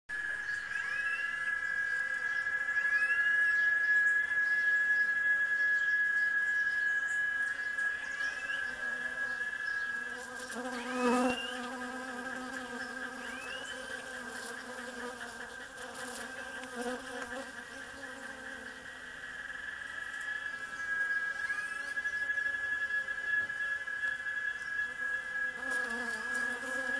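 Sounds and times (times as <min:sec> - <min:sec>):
steady high-pitched whine: 0:00.1 - 0:26.9
bees buzzing: 0:08.3 - 0:20.1, 0:24.8 - 0:26.9.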